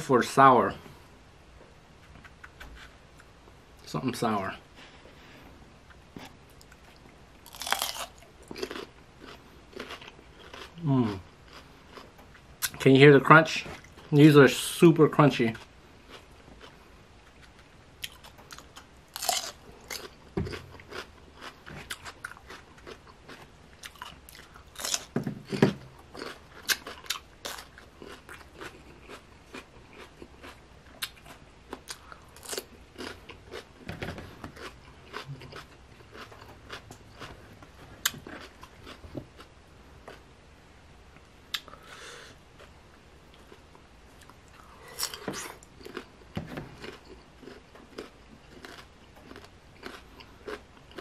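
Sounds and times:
crunchy cucumber chewing: 5.9 - 12.8, 15.5 - 40.3, 42.6 - 51.0.

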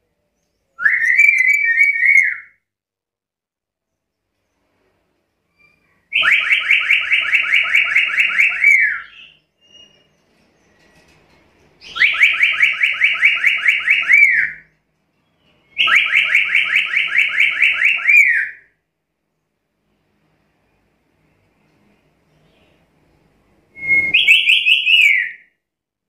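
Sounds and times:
parrot calling rapid notes: 6.1 - 9.4, 11.9 - 14.6.

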